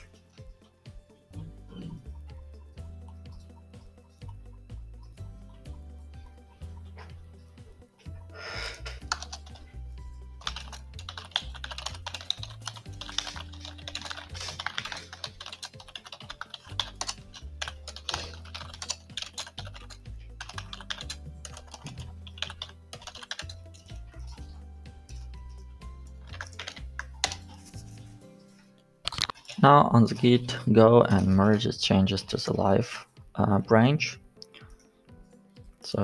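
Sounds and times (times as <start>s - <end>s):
background music with bass: 0.0s - 15.3s, 16.7s - 28.4s.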